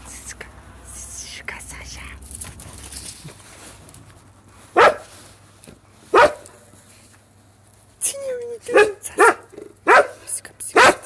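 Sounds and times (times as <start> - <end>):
dog barking: 4.7 - 5.2, 6.1 - 6.6, 8.7 - 11.0.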